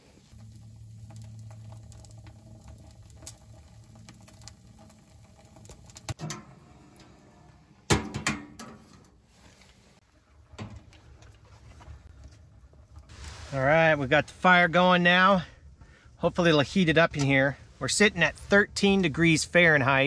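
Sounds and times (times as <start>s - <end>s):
kindling crackling: 0.0s - 7.9s.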